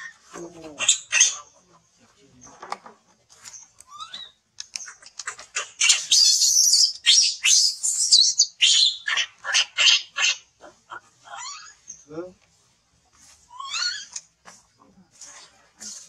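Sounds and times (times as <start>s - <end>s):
young monkey shrill squeals: 0.8s - 1.4s, 5.5s - 10.4s, 11.2s - 11.8s, 13.5s - 14.2s.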